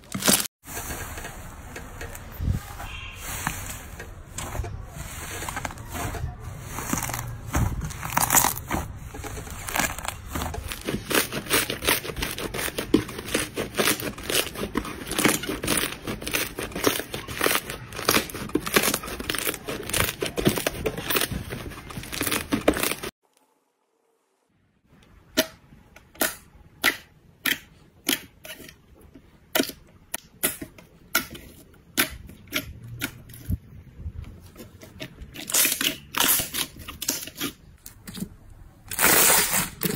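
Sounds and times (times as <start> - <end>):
slime crackling and tearing: 0.0 - 0.5, 6.6 - 23.1, 35.3 - 38.2, 38.8 - 39.9.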